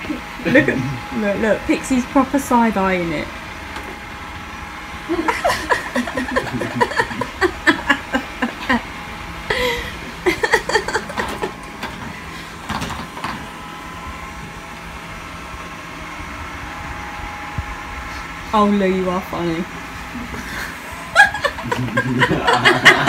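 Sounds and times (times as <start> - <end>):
robot vacuum cleaner humming: 0.0 - 23.0
indistinct voices talking: 5.1 - 11.6.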